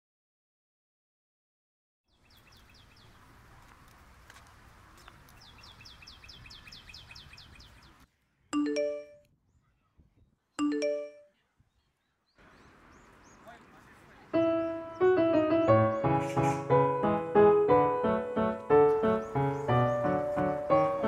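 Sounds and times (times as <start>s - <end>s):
bird chirping: 2.1s - 3.3s, 5.0s - 17.4s, 18.7s - 21.0s
smartphone alert chime: 8.6s - 9.2s, 10.6s - 11.3s.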